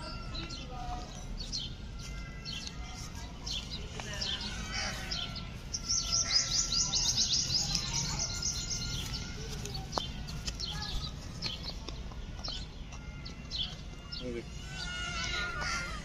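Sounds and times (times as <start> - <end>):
birds chirping: 0.0 - 16.0.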